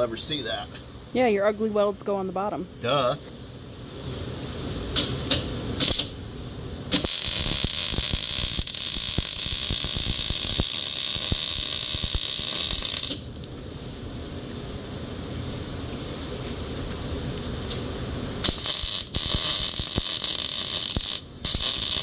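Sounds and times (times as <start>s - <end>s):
welder arc crackling and hissing: 5.0s - 6.2s, 6.9s - 13.5s, 17.4s - 22.0s.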